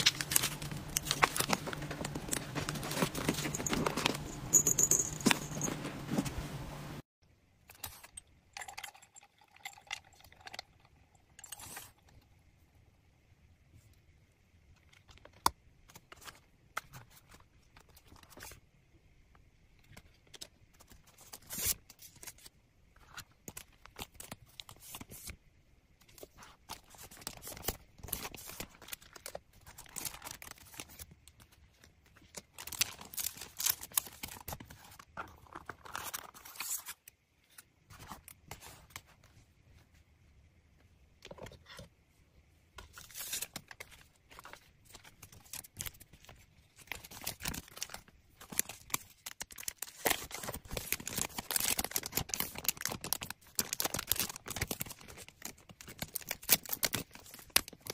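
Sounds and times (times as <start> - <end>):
paper bags rustling: 0.0 - 6.5.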